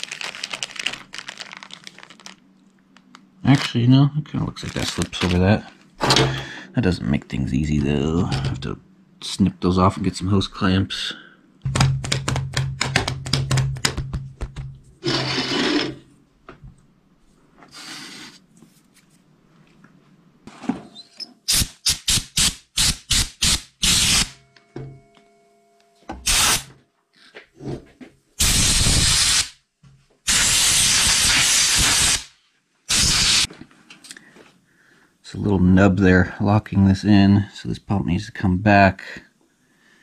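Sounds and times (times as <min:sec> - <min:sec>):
bursts of hissing noise: 0:26.3 - 0:26.7, 0:28.4 - 0:29.6, 0:30.3 - 0:33.5.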